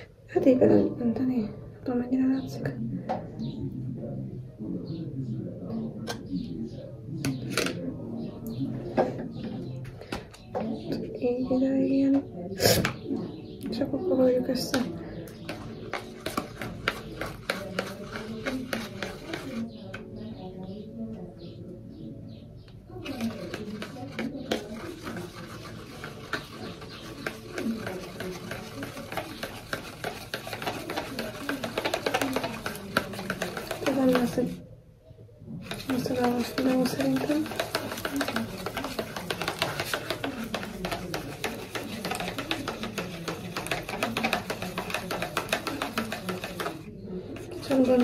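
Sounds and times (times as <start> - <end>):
spoon scraping in bowl: 14.4 - 20.1, 23.0 - 34.6, 35.6 - 48.0.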